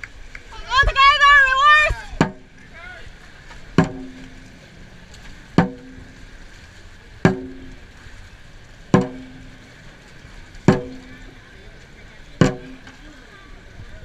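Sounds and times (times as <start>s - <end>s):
drum strikes in a slow beat: 2.2s - 2.6s, 3.8s - 4.5s, 5.6s - 6.2s, 7.2s - 7.8s, 8.9s - 9.7s, 10.7s - 11.3s, 12.4s - 13.0s.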